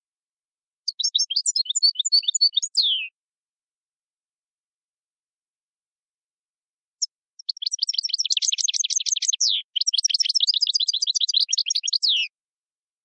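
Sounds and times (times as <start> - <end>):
finch chirping song: 0.9 - 3.1, 7.0 - 12.3.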